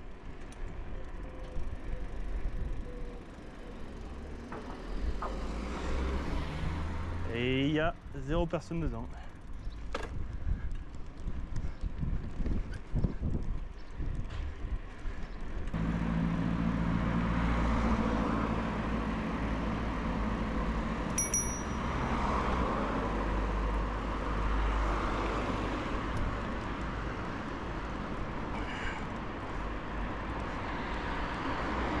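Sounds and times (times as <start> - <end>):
tyre and road noise: 0.0 - 32.0
vehicle engine humming: 15.6 - 23.4
bicycle bell ding: 21.2 - 22.0.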